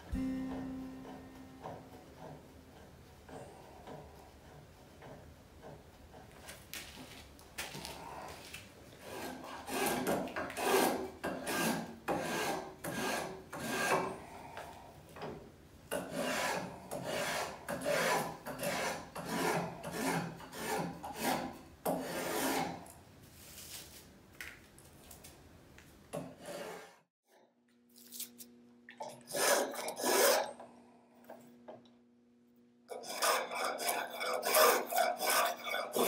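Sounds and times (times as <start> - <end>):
hand tool shaving wood: 3.3 - 14.1, 16.0 - 22.8, 29.3 - 30.5, 32.9 - 36.0.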